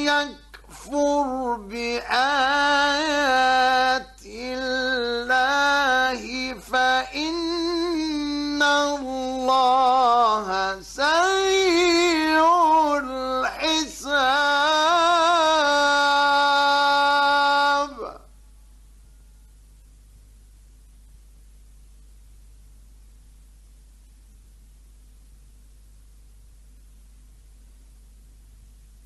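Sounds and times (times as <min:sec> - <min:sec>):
man reciting melodically: 0:00.0 - 0:18.3.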